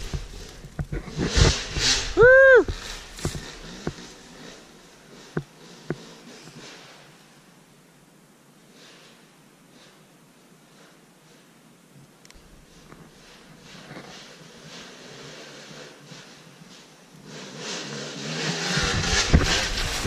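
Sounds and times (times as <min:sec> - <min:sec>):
dirt bike engine approaching: 0:00.0 - 0:07.8, 0:12.4 - 0:20.0.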